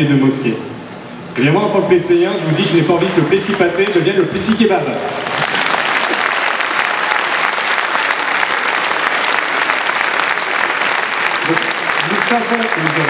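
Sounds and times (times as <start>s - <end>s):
crowd applauding: 2.6s - 13.0s.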